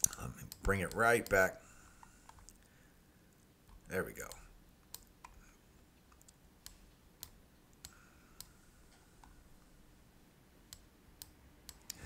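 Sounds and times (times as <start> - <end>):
computer mouse clicks: 0.0 - 1.4, 2.0 - 2.7, 3.7 - 5.4, 6.1 - 9.4, 10.7 - 12.0.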